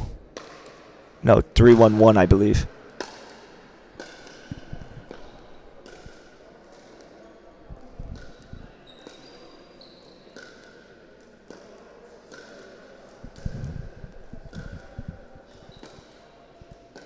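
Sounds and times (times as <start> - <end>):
dull low thuds: 13.2 - 15.3.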